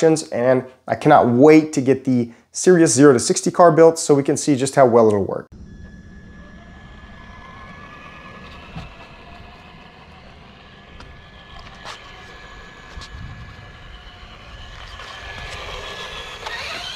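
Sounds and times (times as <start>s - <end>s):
remote-control car whirring: 5.6s - 16.9s.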